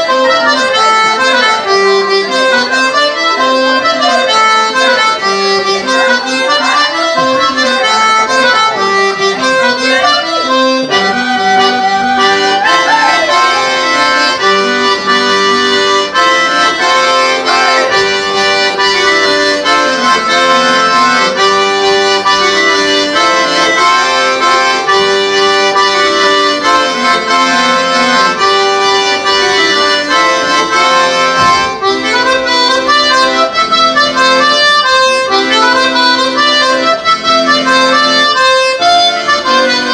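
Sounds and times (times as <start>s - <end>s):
instrumental dance music: 3.3s - 39.9s.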